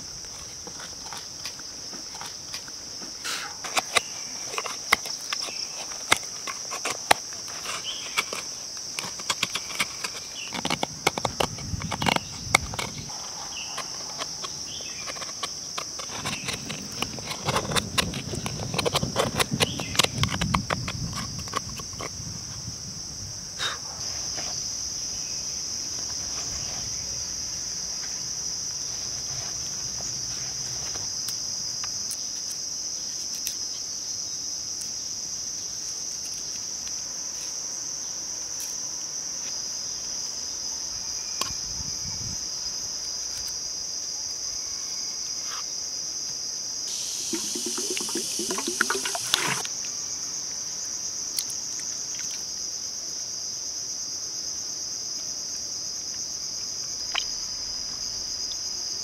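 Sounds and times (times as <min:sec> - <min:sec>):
high insect drone: 0:00.0 - 0:59.0
knife scraping wood: 0:00.4 - 0:22.1, 0:46.9 - 0:49.7.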